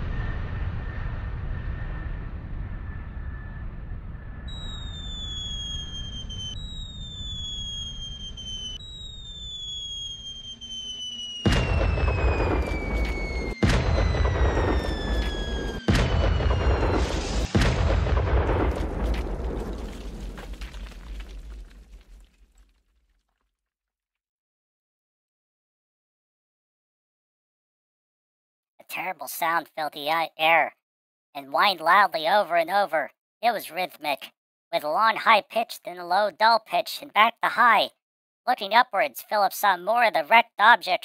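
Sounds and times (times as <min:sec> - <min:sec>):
falling bomb whistles: 0:00.0 - 0:22.2
low rumble: 0:00.0 - 0:22.2
heavy bomb explosions: 0:00.0 - 0:22.6.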